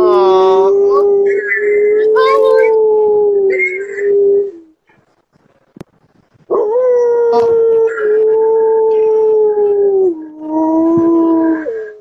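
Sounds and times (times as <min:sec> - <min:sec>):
dog howling: 0:00.0 - 0:04.7, 0:06.5 - 0:12.0.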